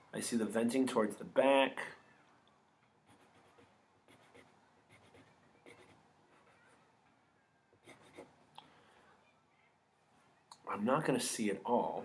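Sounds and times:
pencil scratching on paper: 3.1s - 6.8s, 7.8s - 8.3s.

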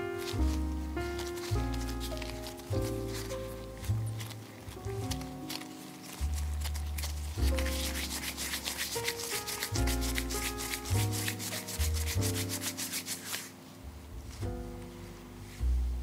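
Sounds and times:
background music with bass: 0.0s - 12.8s, 13.8s - 16.0s
hands rubbing dough: 0.0s - 14.4s.

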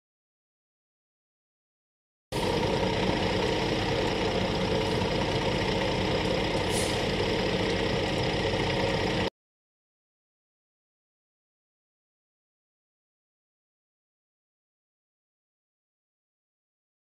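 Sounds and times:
diesel truck engine running: 2.4s - 9.3s.

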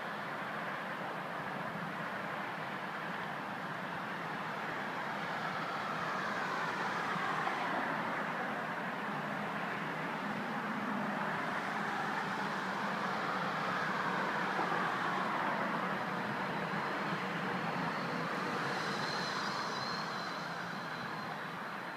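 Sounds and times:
faint high whine: 16.2s - 21.9s.

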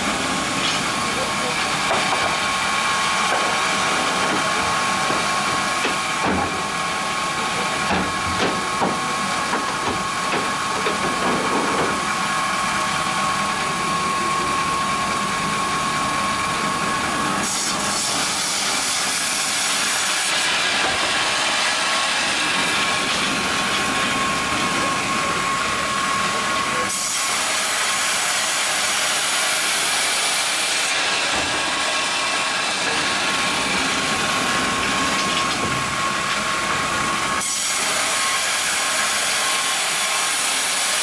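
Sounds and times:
band sawmill whining: 0.0s - 41.0s
saw blade hissing through log: 17.3s - 23.0s, 26.8s - 31.8s.

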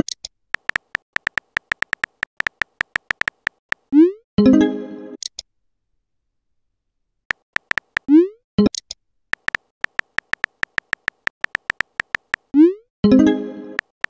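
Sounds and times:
phone keyboard tap clicks: 0.6s - 3.8s, 7.3s - 8.1s, 9.4s - 12.5s
rising electronic message pop: 0.6s - 4.6s, 7.3s - 8.7s, 9.4s - 14.0s.

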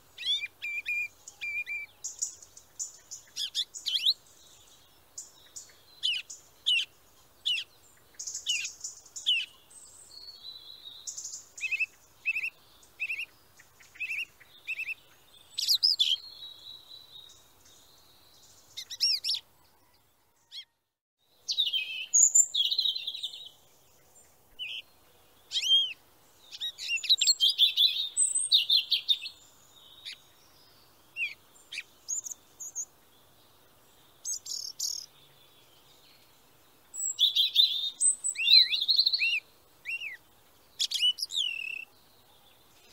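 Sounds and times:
small birds chirping: 0.0s - 42.9s.

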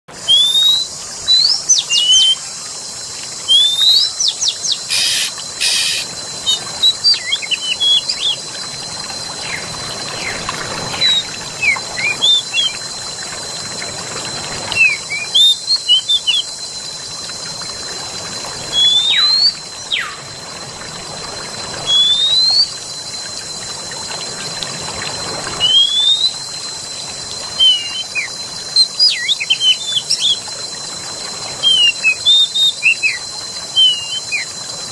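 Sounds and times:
constant high-pitched tone: 0.1s - 34.9s
flowing water rushing: 0.1s - 34.9s
birds chirping and whistling: 0.2s - 2.4s, 3.5s - 8.5s, 9.4s - 12.8s, 14.7s - 16.5s, 18.7s - 20.2s, 21.8s - 22.8s, 27.6s - 30.4s, 31.6s - 34.5s.

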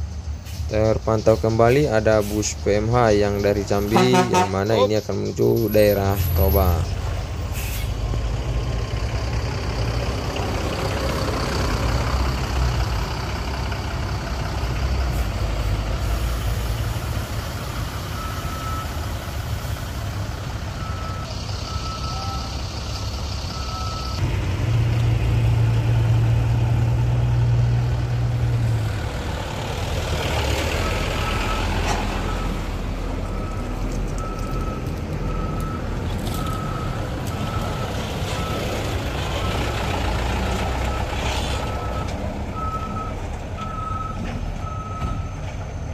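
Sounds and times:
diesel truck engines: 0.0s - 45.9s
reversing alarm beeping: 17.7s - 19.1s, 20.8s - 24.2s, 30.8s - 38.8s, 41.6s - 45.4s.

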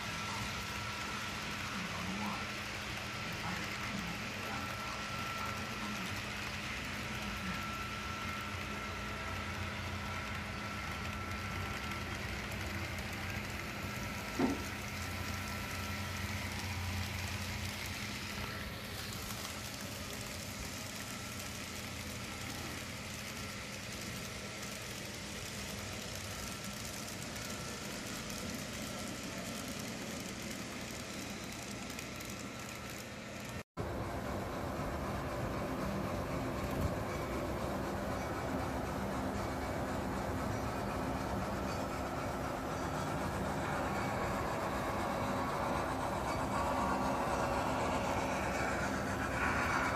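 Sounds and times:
faint high whine: 0.0s - 49.9s
model trains humming and rumbling: 0.0s - 49.9s.

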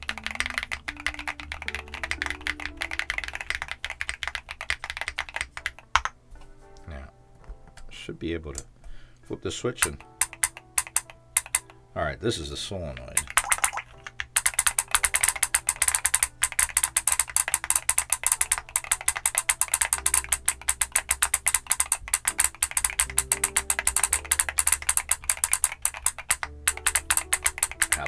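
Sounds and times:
rapid keyboard typing: 0.0s - 6.2s, 9.8s - 11.8s, 12.9s - 28.0s.

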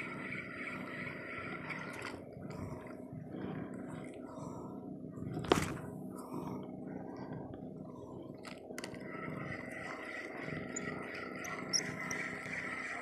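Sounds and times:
fishing reel whirring: 9.2s - 13.0s.

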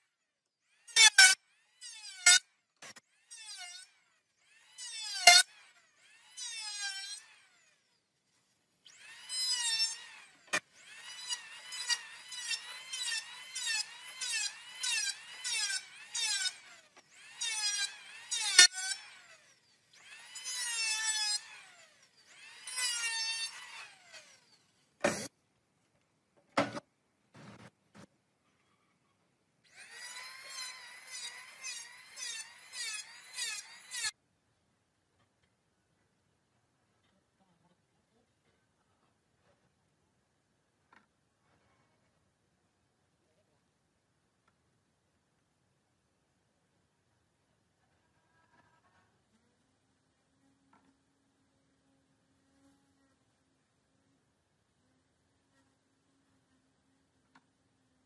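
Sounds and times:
electric planer shaving wood: 8.9s - 24.6s, 29.7s - 34.1s.

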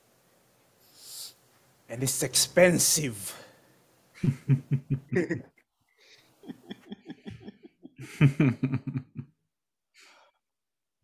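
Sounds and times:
laughter in quick pulses: 4.2s - 5.5s, 6.4s - 9.3s.

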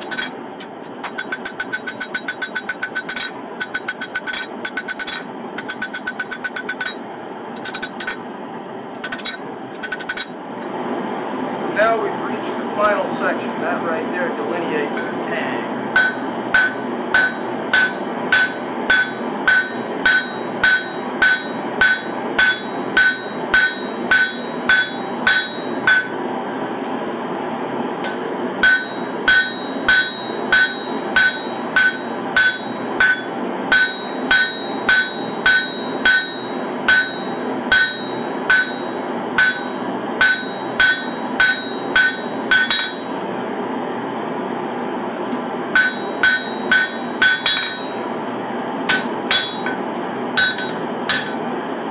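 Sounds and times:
hammer striking blade on anvil: 0.0s - 7.0s, 7.6s - 8.2s, 9.0s - 10.4s, 16.0s - 26.2s, 28.0s - 43.2s, 45.7s - 48.0s, 48.9s - 51.6s
steady background roar: 0.0s - 51.9s.

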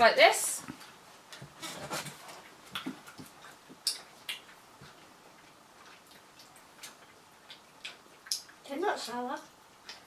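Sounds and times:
mouth clicks and lip smacks: 2.7s - 8.6s.

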